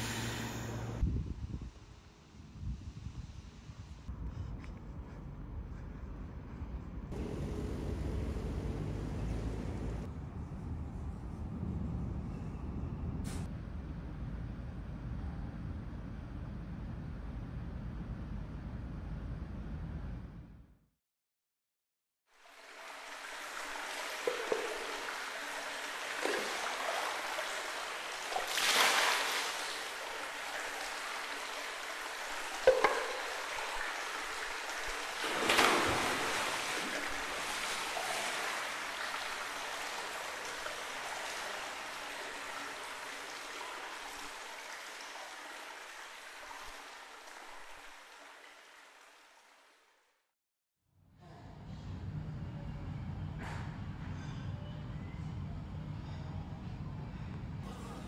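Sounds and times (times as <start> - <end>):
running water rushing: 7.1 - 10.1, 22.4 - 49.9.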